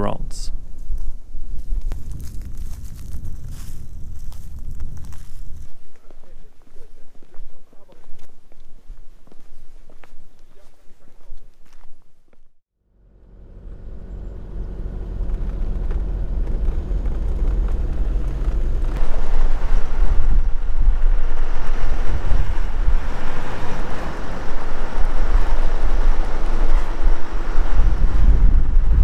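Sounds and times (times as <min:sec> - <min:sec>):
wind noise on microphone: 0:00.0 - 0:10.2, 0:14.8 - 0:29.0
road noise: 0:12.8 - 0:29.0
vehicle engine running: 0:12.8 - 0:29.0.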